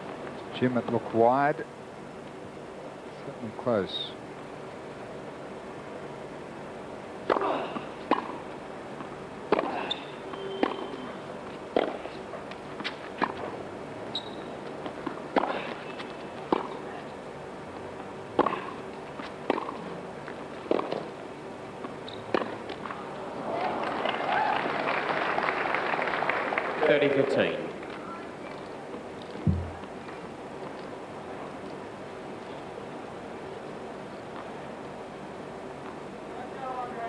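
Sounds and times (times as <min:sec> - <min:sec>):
tennis ball bouncing on court: 0:07.2 - 0:08.4, 0:09.5 - 0:11.0, 0:11.7 - 0:12.1, 0:16.5 - 0:16.8, 0:18.4 - 0:18.7, 0:19.4 - 0:19.9, 0:20.7 - 0:21.1, 0:22.1 - 0:22.9, 0:29.4 - 0:29.9
tennis ball struck by rackets: 0:07.2 - 0:08.4, 0:09.5 - 0:10.9, 0:11.7 - 0:12.1, 0:15.0 - 0:15.8, 0:16.5 - 0:16.8, 0:18.4 - 0:18.8, 0:19.4 - 0:19.8, 0:22.3 - 0:22.6, 0:29.4 - 0:29.9
short high squeaks: 0:09.8 - 0:11.2, 0:14.1 - 0:14.6.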